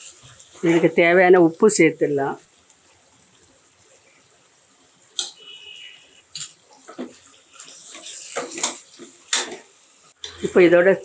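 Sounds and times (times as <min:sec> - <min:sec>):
ladle stirring and scraping masala: 0:05.2 - 0:10.6.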